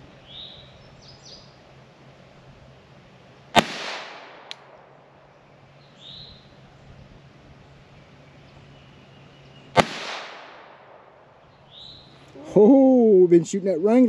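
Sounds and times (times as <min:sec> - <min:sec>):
bird chirping: 0:00.0 - 0:01.7, 0:05.2 - 0:09.8, 0:11.3 - 0:14.0
pistol shot with echo: 0:03.6 - 0:04.9, 0:09.8 - 0:11.2.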